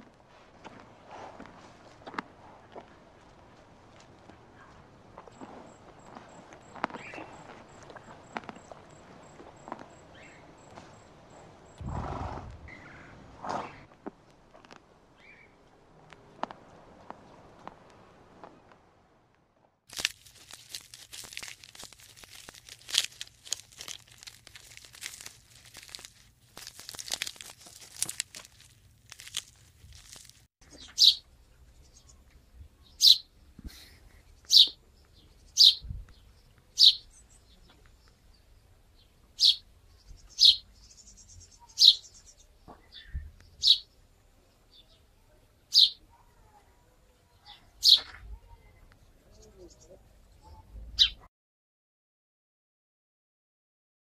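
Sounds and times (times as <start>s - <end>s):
sparrow chirping: 6.3s - 7.5s, 30.7s - 32.2s, 32.8s - 33.4s, 34.2s - 46.1s, 47.3s - 51.3s
dry crackling rustle: 19.9s - 31.2s.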